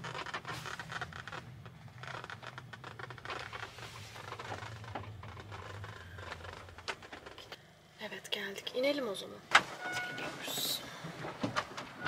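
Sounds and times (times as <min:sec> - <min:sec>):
faint rustling: 0:00.0 - 0:07.7
low steady hum: 0:00.0 - 0:12.0.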